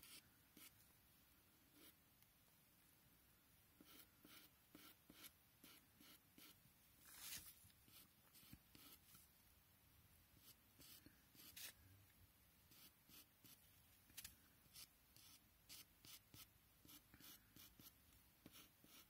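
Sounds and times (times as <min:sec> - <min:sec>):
pencil scratching on paper: 0:00.0 - 0:00.8, 0:01.7 - 0:02.0, 0:03.8 - 0:09.2, 0:10.4 - 0:11.8, 0:12.7 - 0:13.6, 0:14.7 - 0:19.0.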